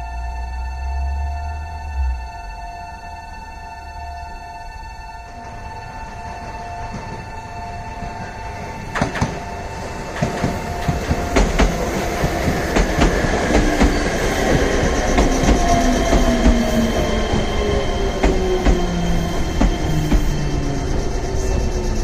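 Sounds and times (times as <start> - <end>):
train motor whine: 0.0 - 22.0
train wheels clacking on rails: 5.5 - 22.0.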